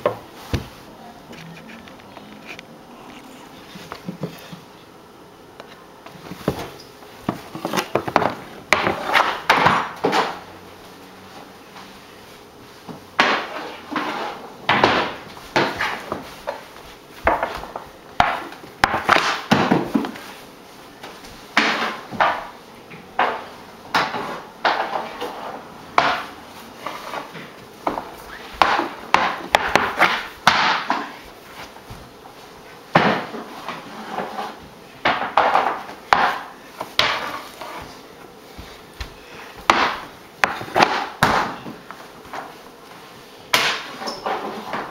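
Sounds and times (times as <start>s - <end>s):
hockey stick tapping on wood floor: 7.3s - 10.4s, 17.2s - 20.2s, 23.2s - 25.3s, 26.0s - 26.3s, 27.4s - 31.2s, 35.0s - 37.9s, 39.0s - 42.5s.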